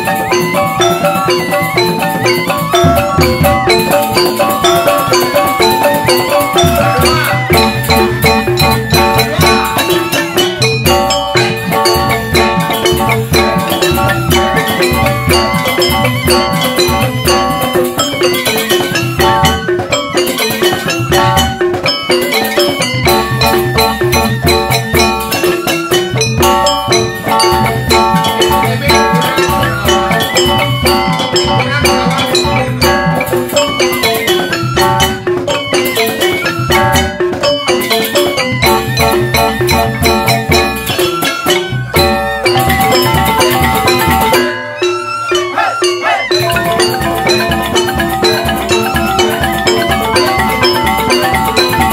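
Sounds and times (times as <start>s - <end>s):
bamboo xylophones ringing: 0.0s - 51.9s
hand drum beats: 0.0s - 51.9s.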